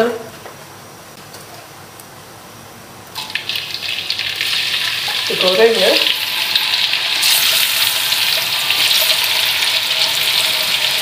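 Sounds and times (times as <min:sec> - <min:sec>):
tofu sizzling in oil: 0:03.2 - 0:11.0.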